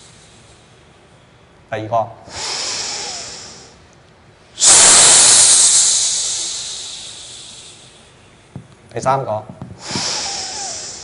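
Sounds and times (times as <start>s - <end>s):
deep breathing: 2.3s - 3.8s, 4.6s - 8.2s, 9.8s - 11.0s.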